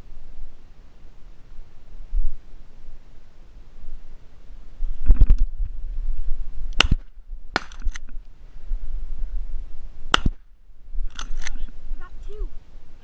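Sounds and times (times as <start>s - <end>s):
shotgun shots: 6.8s - 8.0s, 10.1s - 10.4s.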